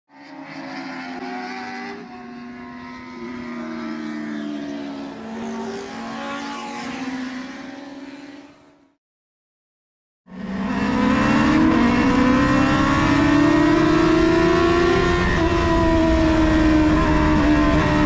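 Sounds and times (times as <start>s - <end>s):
race car engines passing: 0.1s - 8.9s.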